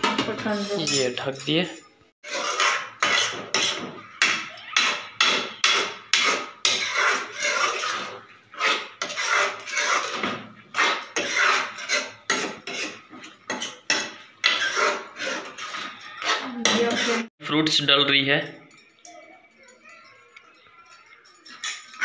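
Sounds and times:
spoon scraping metal pan: 2.2s - 17.3s.

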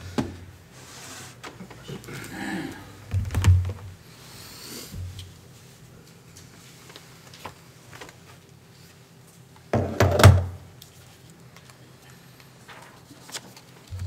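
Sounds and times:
knocks and thumps: 3.1s - 3.9s, 9.7s - 10.6s.

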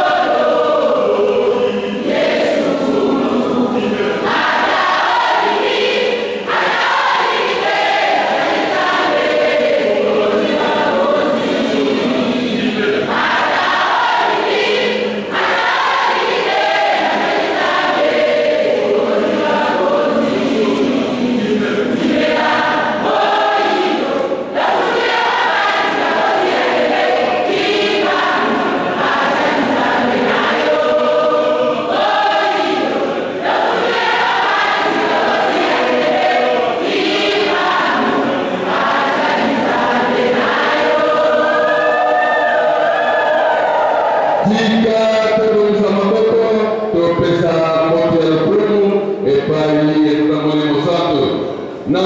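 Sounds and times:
choir singing a hymn: 0.0s - 49.9s.

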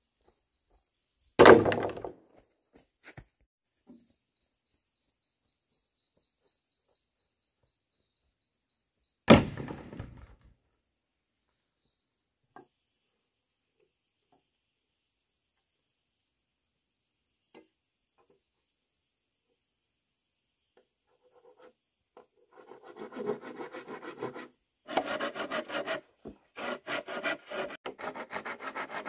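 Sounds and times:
bamboo poles clattering: 1.4s - 2.2s.

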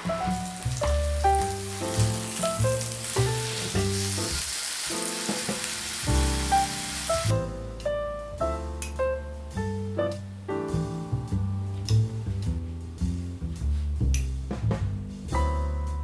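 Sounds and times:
steak sizzling in a frying pan: 0.0s - 7.3s
light piano music: 0.0s - 16.0s.

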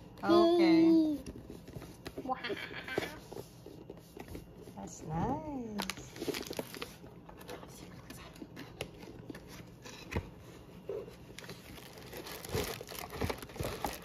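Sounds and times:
plastic wrapping crinkling: 5.6s - 7.5s, 11.2s - 14.0s.

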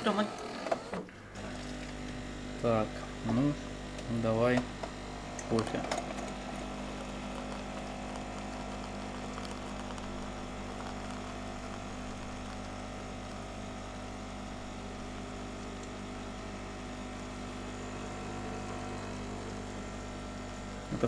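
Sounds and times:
coffee machine pump humming: 0.0s - 21.0s.

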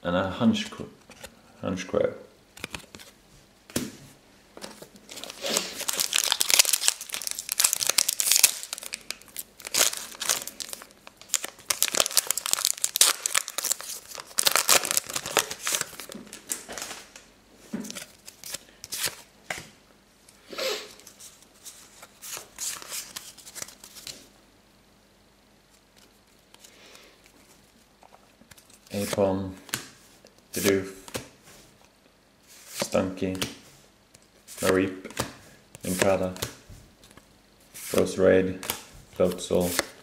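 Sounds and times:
foil wrapper crinkling and tearing: 5.1s - 17.0s.

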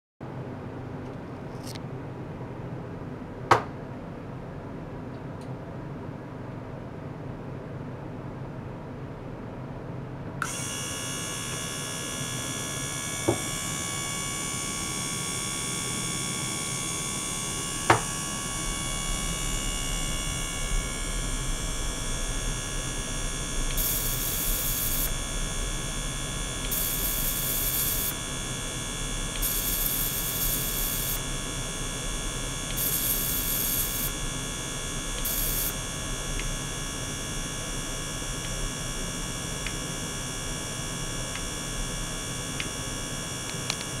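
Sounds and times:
electrical hum: 0.2s - 44.0s
steady equipment tones: 10.4s - 44.0s.

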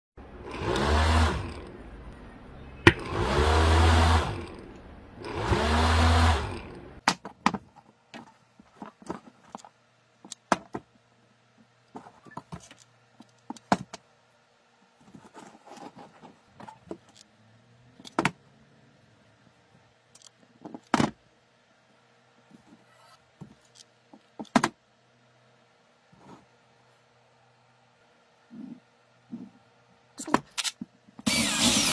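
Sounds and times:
small parts clicking on wood: 20.1s - 20.9s.

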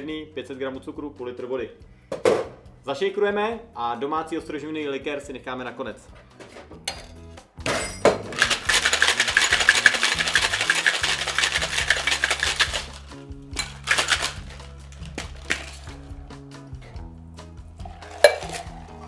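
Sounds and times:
shaker tins knocking together: 7.7s - 16.2s, 17.9s - 18.9s
ice rattling in cocktail shaker: 8.3s - 16.1s, 17.8s - 19.0s.

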